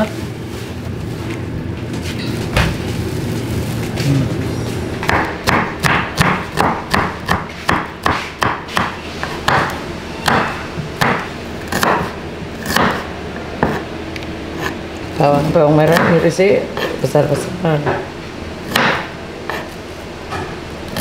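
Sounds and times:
cleaver chopping on wooden board: 0:05.0 - 0:13.0, 0:15.9 - 0:16.2, 0:18.7 - 0:19.7.

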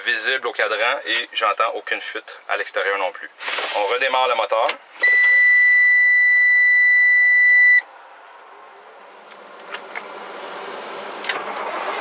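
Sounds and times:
high warning beep: 0:05.0 - 0:07.8
truck engine starting: 0:09.4 - 0:12.0.

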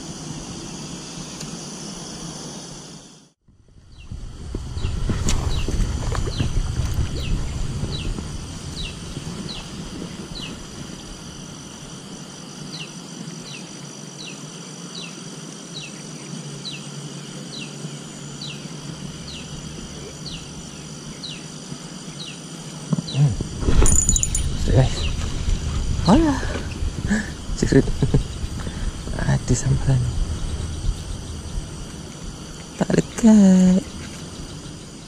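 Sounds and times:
high-pitched insect drone: 0:00.0 - 0:35.0
low rumble: 0:03.5 - 0:10.8, 0:18.2 - 0:21.3, 0:23.4 - 0:33.2.

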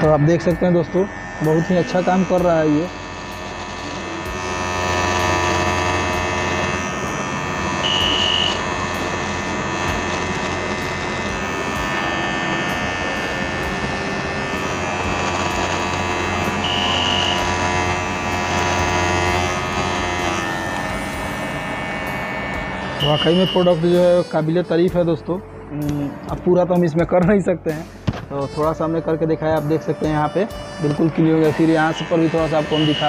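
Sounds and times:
beard trimmer humming: 0:00.0 - 0:26.4, 0:29.5 - 0:33.0
high-pitched tones: 0:00.0 - 0:26.4, 0:28.7 - 0:33.0.

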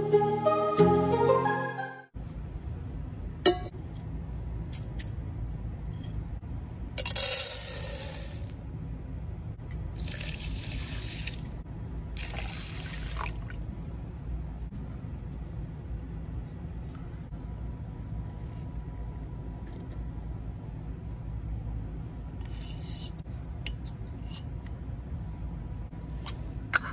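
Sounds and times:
rice pouring into metal pot: 0:10.0 - 0:11.4
water pouring into pot: 0:10.0 - 0:11.5, 0:12.2 - 0:13.5.

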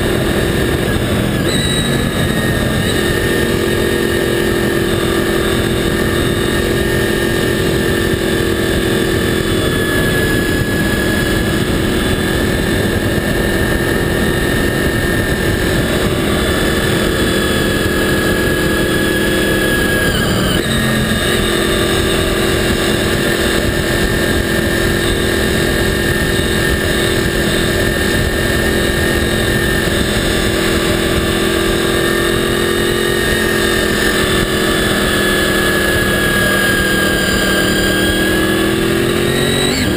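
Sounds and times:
motorcycle engine at high revs: 0:00.0 - 0:39.9
wind and road noise: 0:00.0 - 0:39.9.

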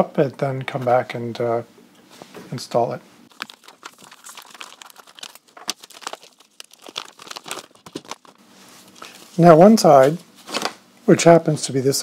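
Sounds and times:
plastic bag crinkling: 0:03.3 - 0:09.6.

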